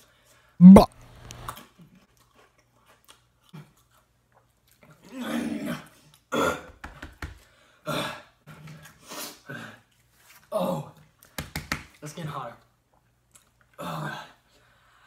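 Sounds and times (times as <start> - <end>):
man exhaling and grunting: 0.6 - 0.9
man's throaty vocal noise: 0.6 - 0.9.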